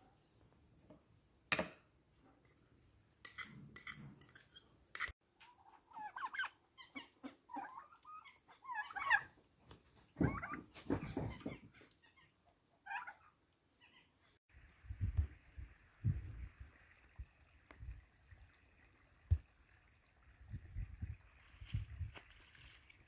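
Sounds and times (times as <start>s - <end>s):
turkeys calling: 5.6s - 9.3s, 12.9s - 13.3s.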